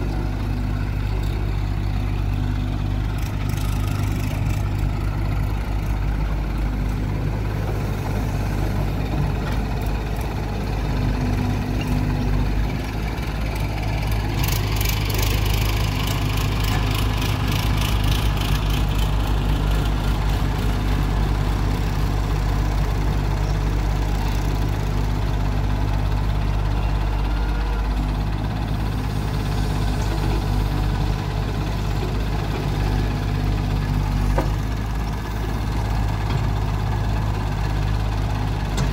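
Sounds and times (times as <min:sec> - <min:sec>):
excavator working: 0:00.0 - 0:38.9
tractor engine idling: 0:00.0 - 0:38.9.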